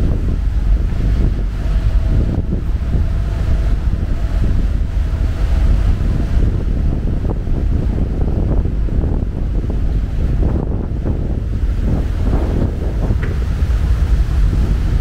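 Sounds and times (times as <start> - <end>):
ferry engines: 0.0 - 15.0
rumble of water: 0.0 - 15.0
wind buffeting microphone: 0.0 - 15.0.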